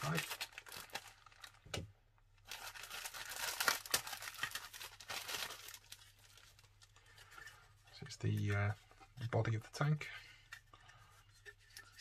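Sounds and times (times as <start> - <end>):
plastic bag crinkling: 0.0 - 1.8, 2.4 - 7.6.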